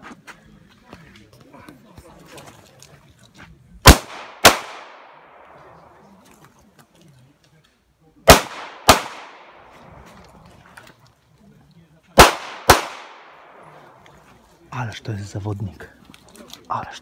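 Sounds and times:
pistol shots: 3.8s - 5.6s, 8.3s - 9.7s, 12.2s - 13.7s.

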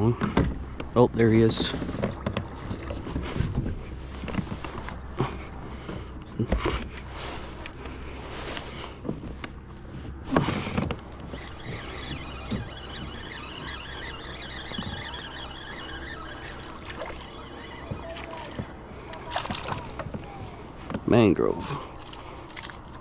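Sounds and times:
fishing reel ticking: 11.3s - 20.0s.

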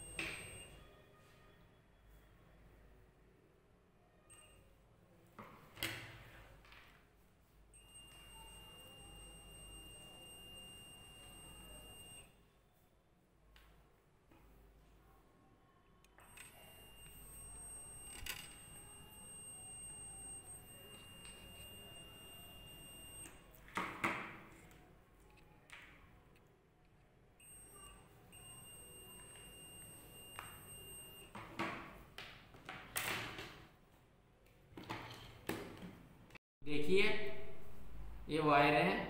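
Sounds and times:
multimeter high beep: 0.0s - 1.0s, 7.8s - 12.4s, 16.1s - 23.9s, 27.4s - 31.5s.

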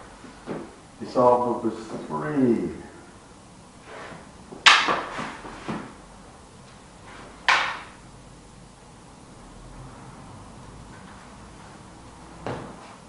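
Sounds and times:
practice sticks clacking together: 4.6s - 5.1s, 7.5s - 8.0s.

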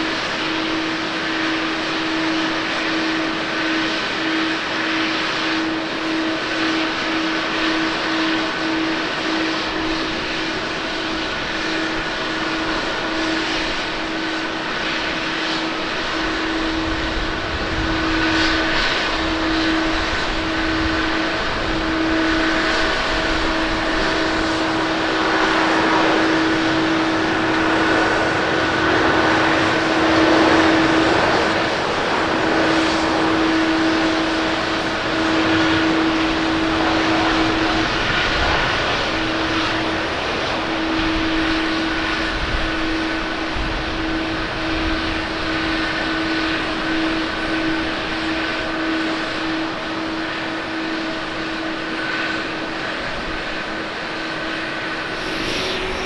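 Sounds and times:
jet engines at take-off thrust: 0.0s - 56.0s
steady hum: 52.6s - 56.0s.

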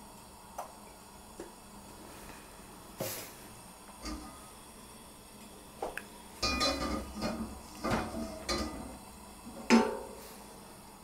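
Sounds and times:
wok clanking on metal grate: 6.4s - 8.9s, 9.6s - 10.2s.

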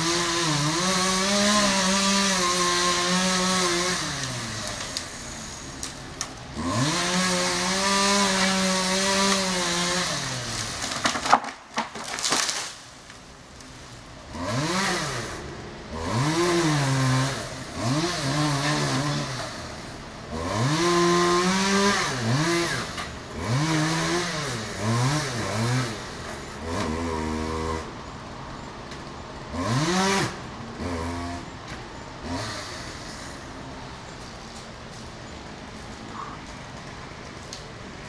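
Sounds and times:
chainsaw engine revving: 0.0s - 5.6s, 6.5s - 11.2s, 14.3s - 19.6s, 20.3s - 27.9s, 29.5s - 31.5s, 32.2s - 33.4s.

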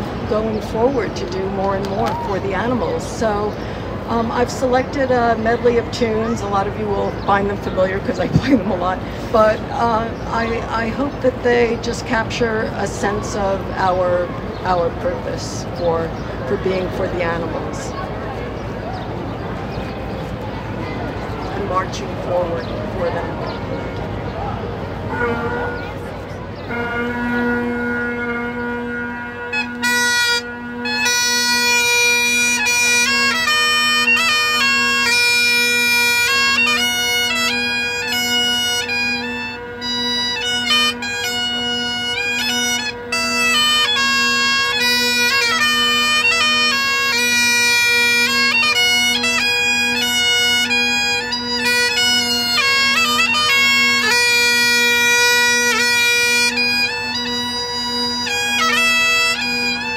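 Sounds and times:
bagpipe chanter melody: 0.0s - 59.9s
bagpipe drone: 0.0s - 59.9s.

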